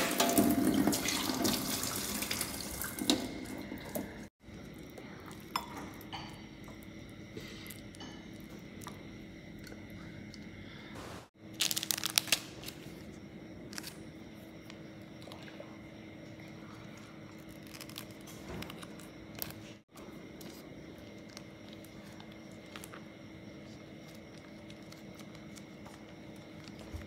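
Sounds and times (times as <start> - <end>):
faint steady hum: 2.4 - 27.0
plastic sachet tearing: 11.5 - 12.8.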